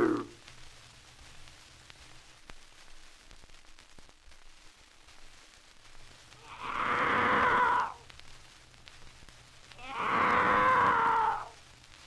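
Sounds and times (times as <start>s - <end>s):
record surface hiss: 0.0s - 12.0s
eerie animal screeches: 6.4s - 8.0s, 9.8s - 11.5s.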